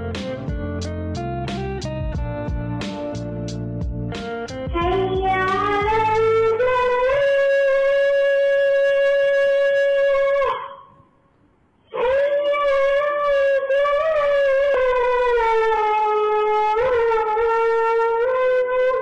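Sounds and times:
boy chanting call to prayer: 4.7 - 8.4.

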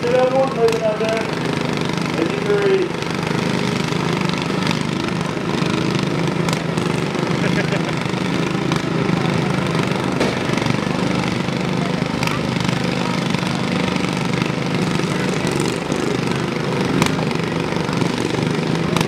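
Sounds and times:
riding lawn mower engines: 0.0 - 19.0.

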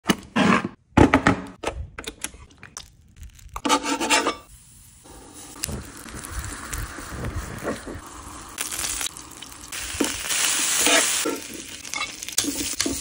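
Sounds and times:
metal spoon scraping griddle: 3.6 - 4.5, 10.7 - 13.0
faint food sizzle: 4.5 - 13.0.

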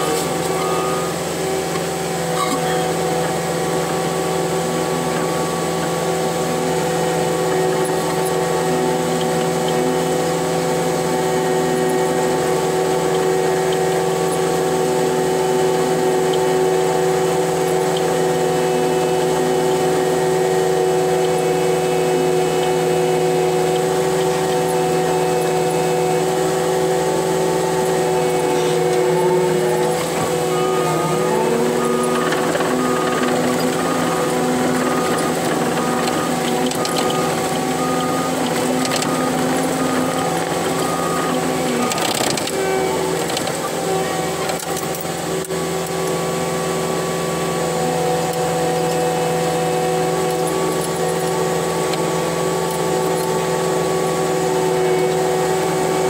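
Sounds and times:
diesel engine and hydraulics humming: 0.0 - 56.0
blade pushing dirt: 11.7 - 45.3.

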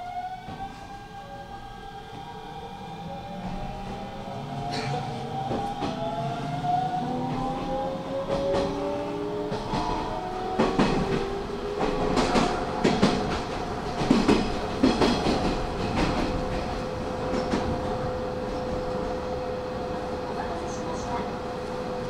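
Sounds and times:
steady train hum: 0.0 - 22.0
train wheels clacking over joints: 7.3 - 18.0.

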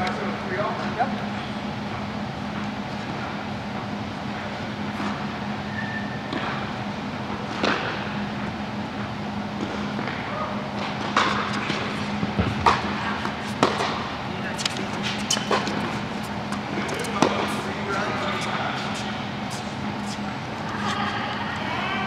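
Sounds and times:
steady low hum: 0.0 - 22.0
tennis balls hit by racket: 7.5 - 8.1, 9.6 - 20.9
balls bouncing on court: 9.6 - 19.9.

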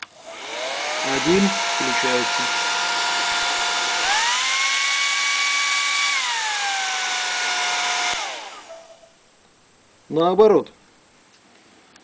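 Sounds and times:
hair dryer blowing: 0.0 - 8.9.

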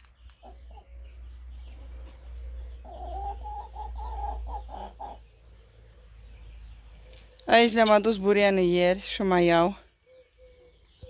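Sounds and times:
chickens clucking: 0.2 - 6.0.

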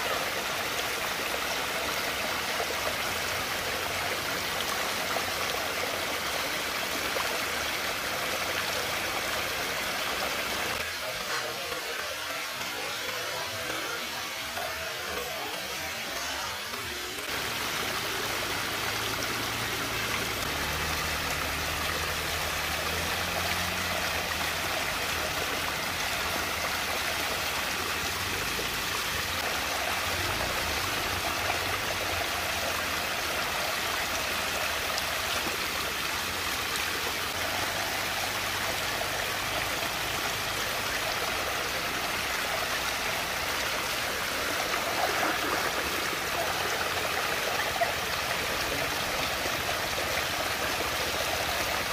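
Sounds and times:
water swirling in whirlpool: 0.0 - 51.9.

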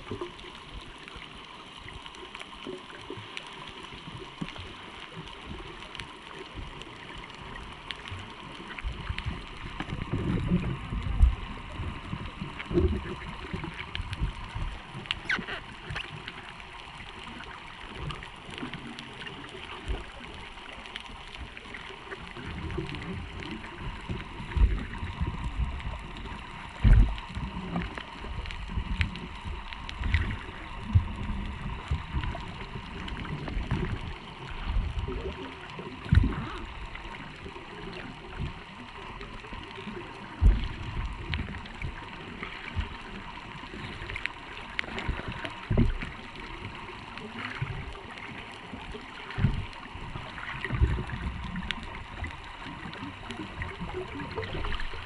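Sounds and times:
muffled underwater hiss: 0.0 - 55.0
low underwater thumps and knocks: 26.8 - 27.2.

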